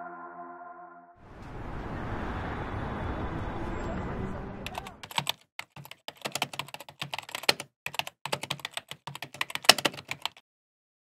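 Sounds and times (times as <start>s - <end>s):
typing on laptop keyboard: 4.7s - 10.4s.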